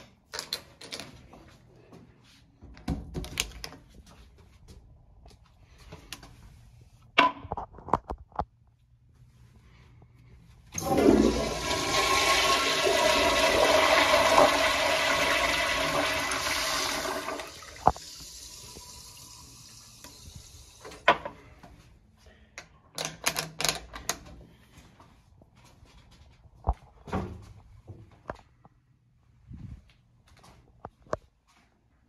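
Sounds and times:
toilet flushing water rush: 10.8 - 21.1.

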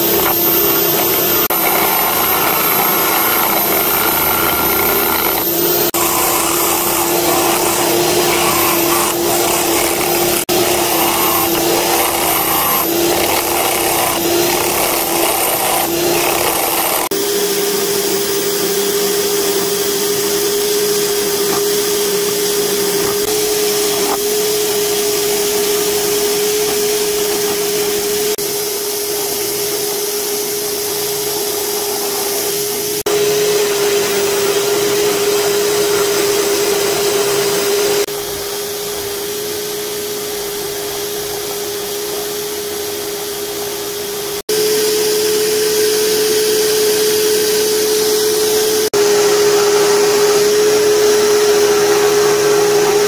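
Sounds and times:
chisel scraping wood: 0.0 - 28.4
lathe motor whine: 0.0 - 53.0.

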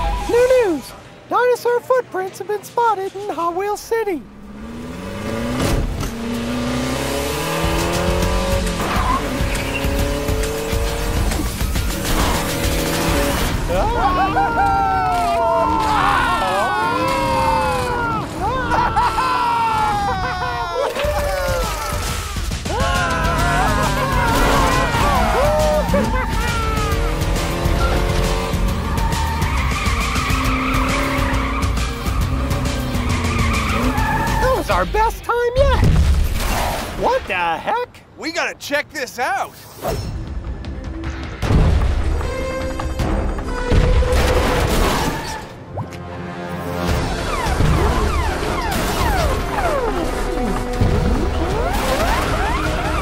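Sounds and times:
background music: 0.0 - 37.2, 39.6 - 53.0
race car engine revving: 4.2 - 13.8, 23.2 - 34.4.

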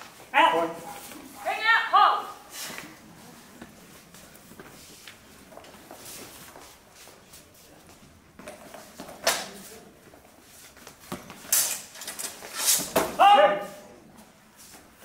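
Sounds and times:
feet shuffling on wooden floor: 2.5 - 9.1.

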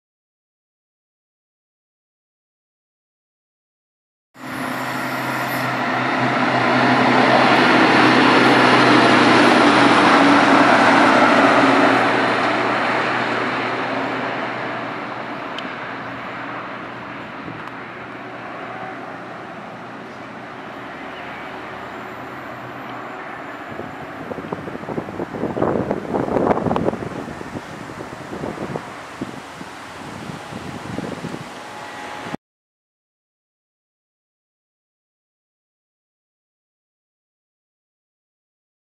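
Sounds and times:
track machine diesel engines droning: 4.4 - 32.4.

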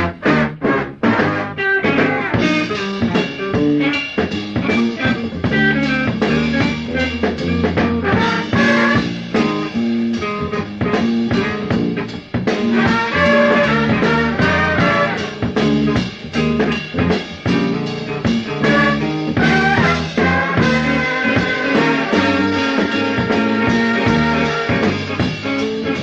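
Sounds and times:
electric guitar: 0.0 - 26.0
funk band playing: 0.0 - 26.0.

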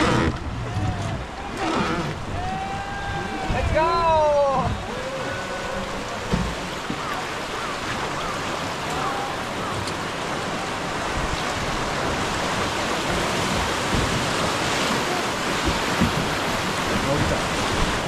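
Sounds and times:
river water rushing: 0.0 - 18.0.

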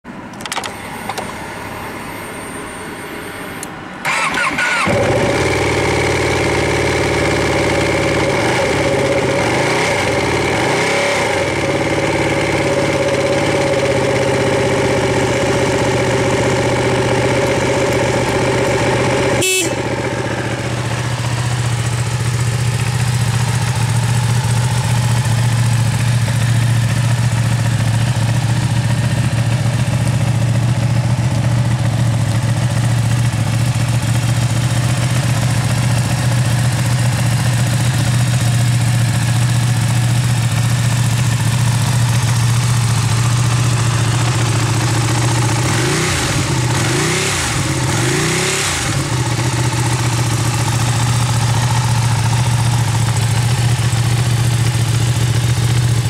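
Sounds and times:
thin high whine: 0.6 - 4.0
motorcycle engine starting and idling: 3.4 - 56.0.

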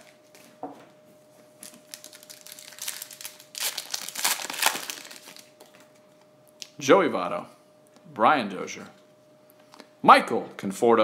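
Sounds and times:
foil wrapper crinkling: 1.6 - 5.8.

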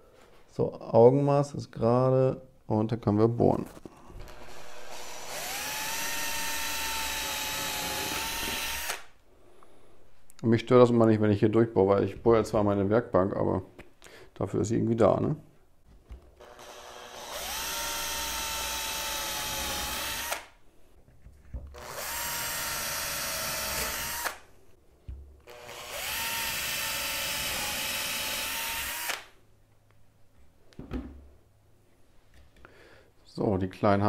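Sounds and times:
cordless drill boring wood: 4.2 - 9.1, 16.4 - 20.5, 21.8 - 24.4, 25.5 - 29.3
drill knocking against panel: 6.7 - 8.9.

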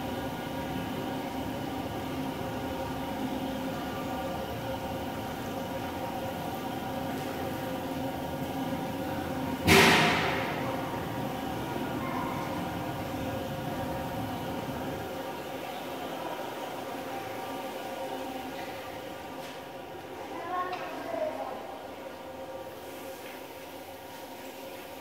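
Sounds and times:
pump machine hum: 0.0 - 19.4.

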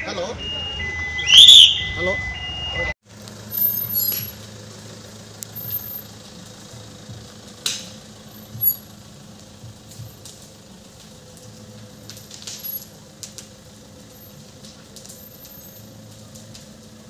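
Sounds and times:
fire pops and cracks: 3.1 - 4.5, 5.4 - 17.0
low background rumble: 3.9 - 17.0.

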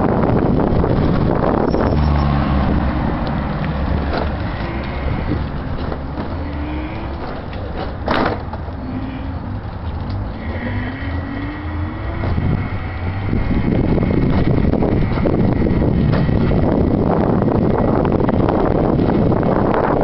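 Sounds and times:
road and wind rumble: 0.0 - 20.0
electric motor whine: 4.4 - 5.6.

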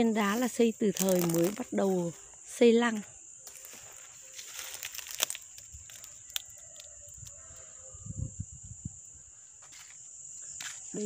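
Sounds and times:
footsteps on dry ground: 0.0 - 6.1
insects chirring: 0.0 - 11.0.

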